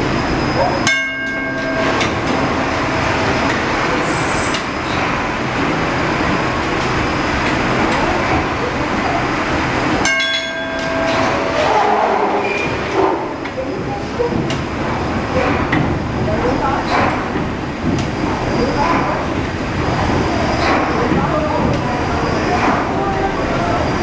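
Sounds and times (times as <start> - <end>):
steam engine clatter: 0.0 - 24.0
bell ringing: 0.8 - 2.2, 10.0 - 11.5.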